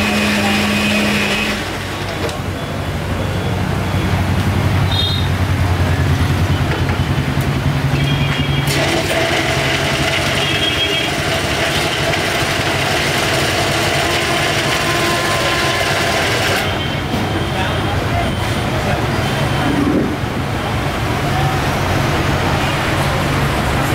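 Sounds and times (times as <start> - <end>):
mixer grinder motor running: 0.0 - 2.4, 8.6 - 16.8.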